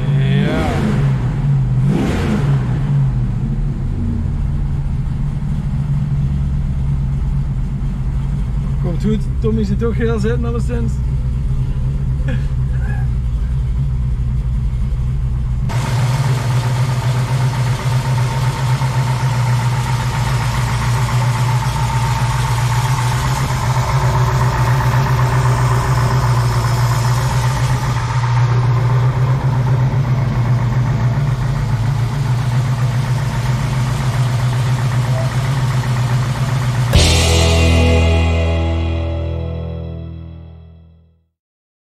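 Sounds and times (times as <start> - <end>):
vee eight engine running: 6.2 - 39.6.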